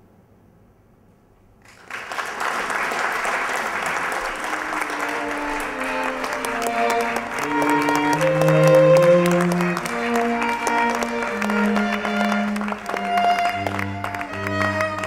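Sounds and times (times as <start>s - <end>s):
audience applause: 1.6s - 15.0s
music of held instrumental notes: 4.2s - 15.0s.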